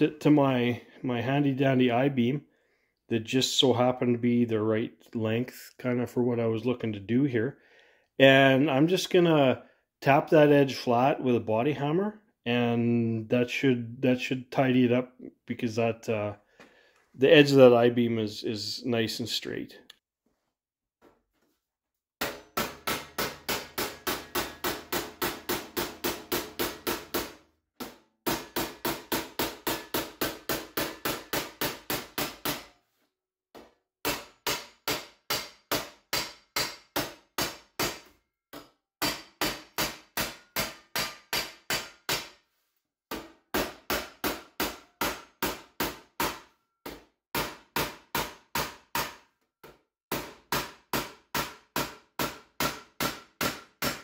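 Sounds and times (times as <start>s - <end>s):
hammer tapping sheet metal: 22.2s - 32.8s, 33.6s - 42.4s, 43.1s - 54.0s.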